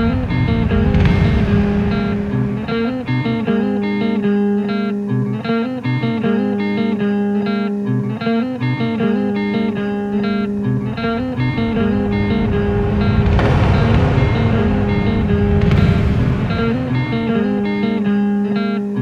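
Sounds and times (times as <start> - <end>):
held low note: 0.0 - 4.5, 9.0 - 18.1
slow picked guitar: 0.0 - 19.0.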